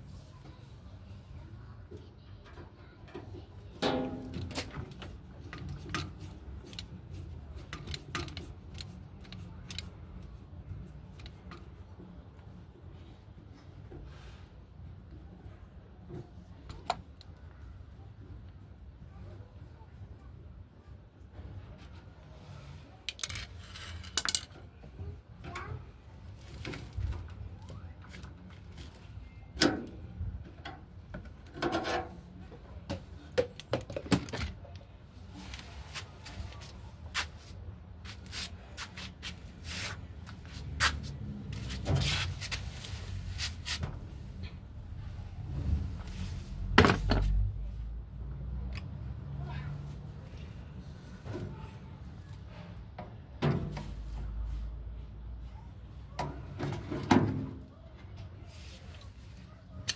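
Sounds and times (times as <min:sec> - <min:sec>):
clicks and knocks of handling: 0:02.0 - 0:10.4.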